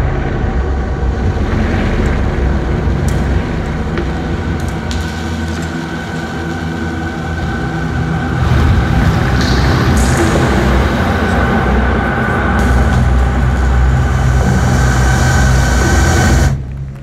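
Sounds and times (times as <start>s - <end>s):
crackles and clicks: 0.0s - 17.0s
heavy low rumble: 0.0s - 17.0s
steady high tone: 9.4s - 16.6s.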